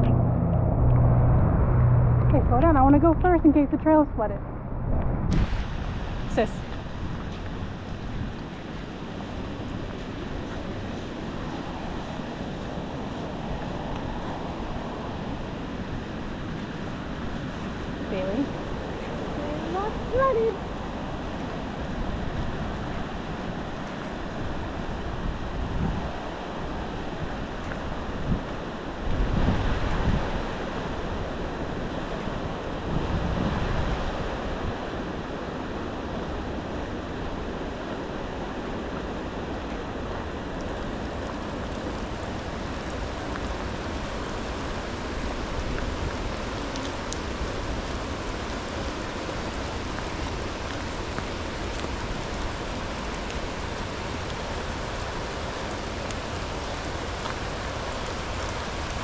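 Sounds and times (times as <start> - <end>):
wind buffeting on microphone: 0.0 - 59.0
river rushing: 5.3 - 59.0.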